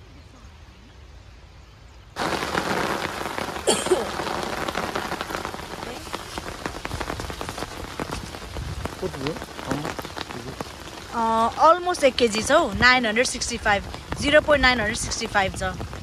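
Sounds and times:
rain falling: 0:00.0 - 0:16.0.

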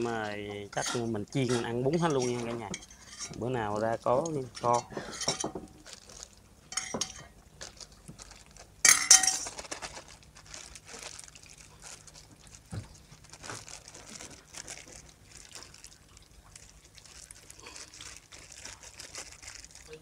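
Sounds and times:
spoon clinking on metal pot: 0:06.7 - 0:07.3, 0:08.8 - 0:09.4.

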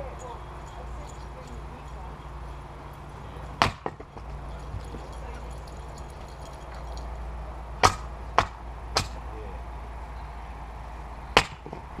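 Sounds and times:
maul striking firewood: 0:03.6 - 0:04.4, 0:07.8 - 0:09.3, 0:11.4 - 0:11.9.

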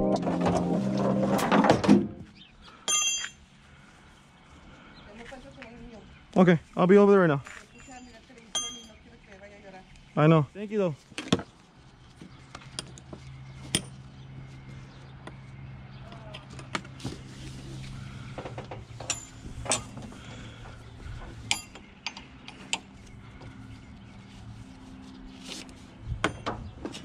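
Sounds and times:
steady low hum: 0:17.1 - 0:26.7
metal strap hooks clinking: 0:19.0 - 0:20.0.

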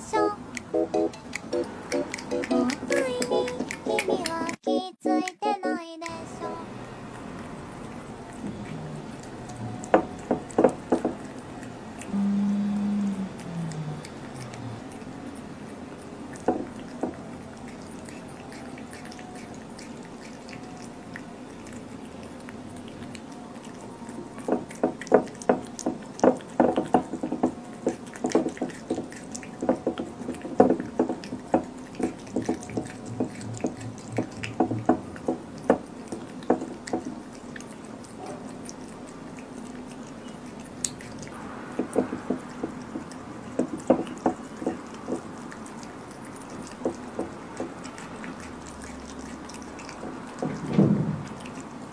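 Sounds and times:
cat chewing wetly: 0:00.0 - 0:04.6, 0:06.0 - 0:51.9.

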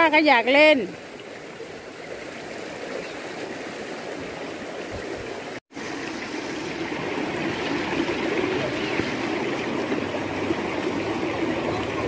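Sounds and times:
stream flowing over rocks: 0:00.0 - 0:12.0.

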